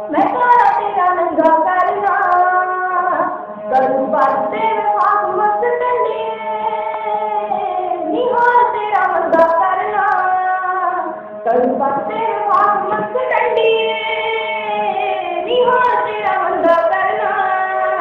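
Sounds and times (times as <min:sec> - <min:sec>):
woman singing: 0:00.0 - 0:18.0.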